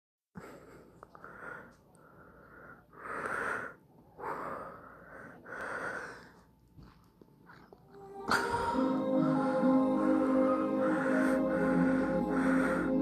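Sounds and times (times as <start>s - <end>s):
person breathing softly: 0.4s - 6.9s, 9.4s - 13.0s.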